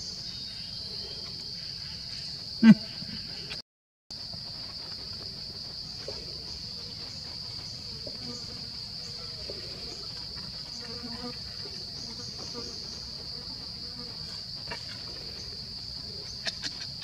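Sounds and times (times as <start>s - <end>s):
insect chorus drone: 0.0s - 17.0s.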